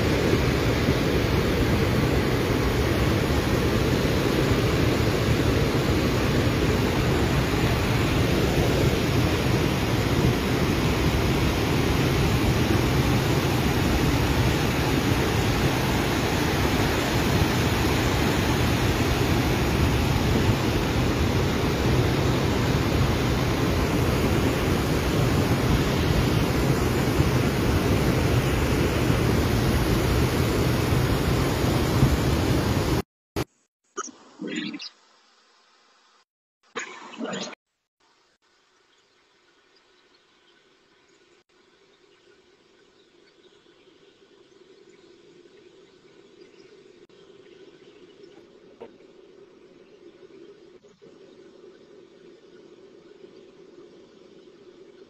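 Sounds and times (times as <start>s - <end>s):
fast water rushing: 0.0s - 33.0s.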